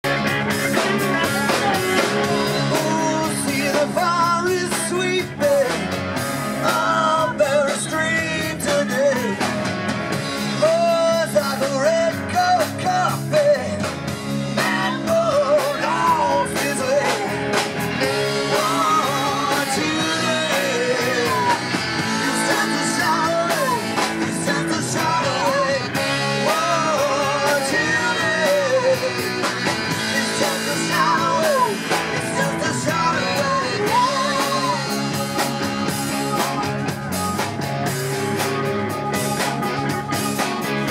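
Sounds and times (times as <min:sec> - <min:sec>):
rock band playing live: 0:00.0 - 0:40.9
man and woman singing: 0:01.1 - 0:05.9, 0:06.6 - 0:09.6, 0:10.6 - 0:36.4.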